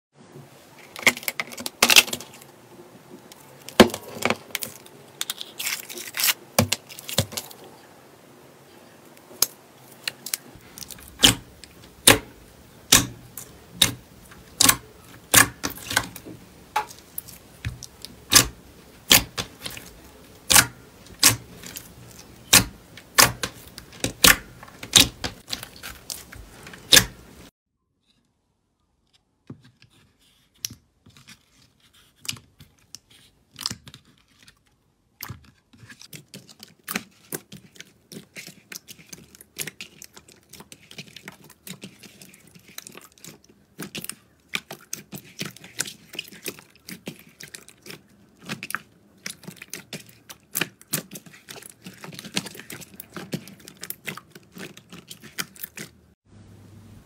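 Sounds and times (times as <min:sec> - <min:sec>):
slime squelching and crackling: 0:09.1 - 0:27.5, 0:31.4 - 0:56.2.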